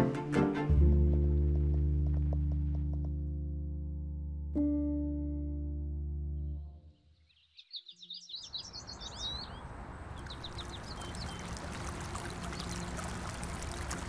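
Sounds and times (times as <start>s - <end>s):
held music chord: 0.0s - 7.0s
small birds chirping: 6.9s - 14.0s
stream trickling over rocks: 9.2s - 14.0s.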